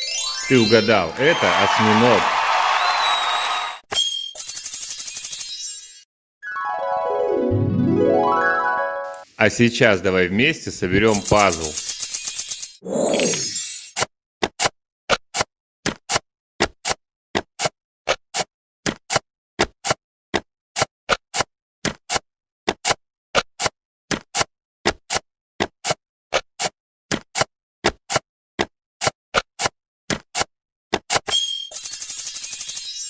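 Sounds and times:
puzzle pieces clicking into place: 11.0 - 14.7.

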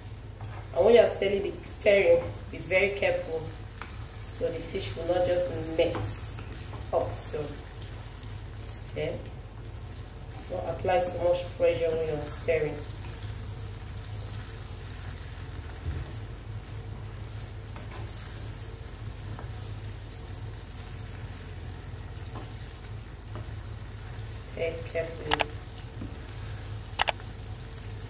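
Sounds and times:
sauce sizzling in oil: 0.0 - 24.6
sharp clicks: 25.3 - 25.5, 27.0 - 27.2.

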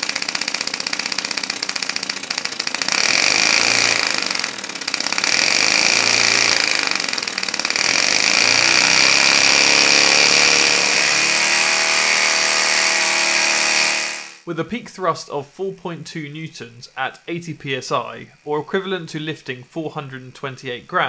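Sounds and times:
compressed-air engine whining: 0.0 - 14.5.

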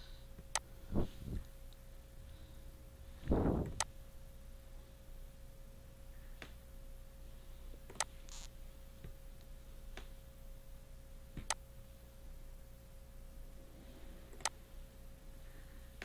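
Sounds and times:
faint electrical hum: 0.0 - 16.0
computer mouse clicking: 14.3 - 14.6.

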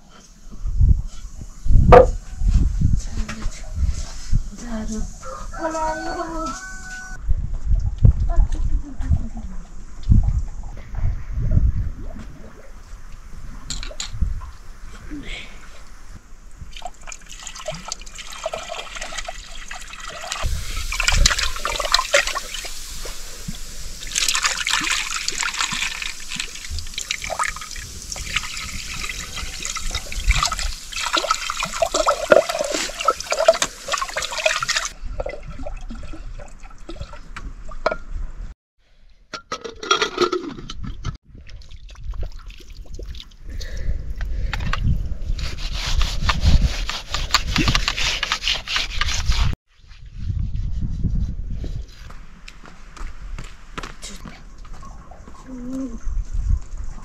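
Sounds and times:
water splashing in a pot: 16.7 - 38.0.

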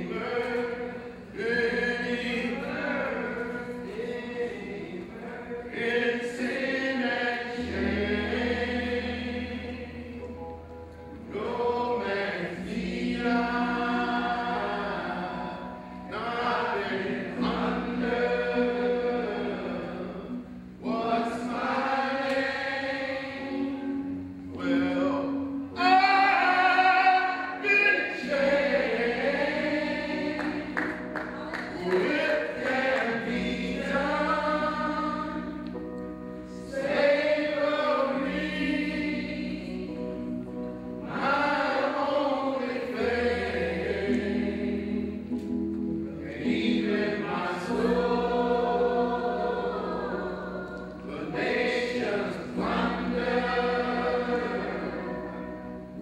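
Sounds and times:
group singing: 0.0 - 10.6, 11.2 - 35.9, 36.5 - 45.6, 46.2 - 56.0
man singing loudly: 24.6 - 28.3.

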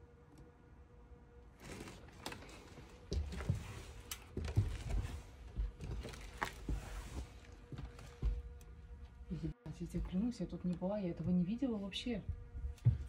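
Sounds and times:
footsteps clicking and crunching: 1.6 - 9.3, 12.2 - 13.0.

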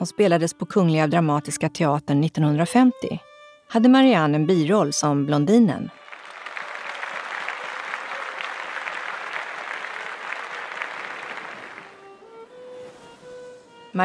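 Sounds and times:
audience applauding: 6.0 - 12.4.

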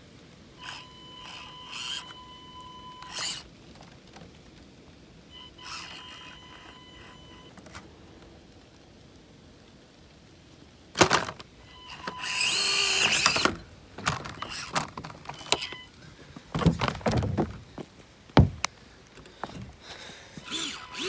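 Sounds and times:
toy truck clicks and scrapes on wood: 0.6 - 2.2, 3.0 - 3.5, 5.6 - 7.7, 11.0 - 15.9, 20.4 - 21.0
small electric motor whining: 0.6 - 3.5, 5.4 - 7.5, 11.8 - 13.6, 14.4 - 14.8, 20.4 - 21.0.

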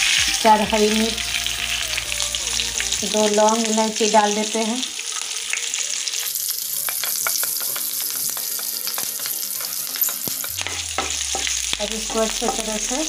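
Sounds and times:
spices sizzling in hot oil: 0.0 - 13.0
wooden spatula stirring: 6.8 - 11.5.

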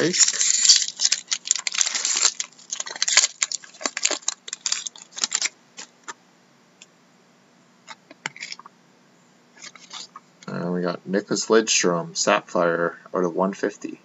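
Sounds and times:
foil wrapper crinkling: 0.0 - 6.2.

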